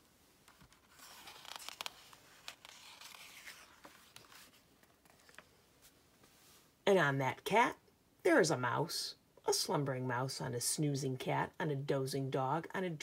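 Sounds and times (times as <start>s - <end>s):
paper page rustling: 0.4s - 6.0s.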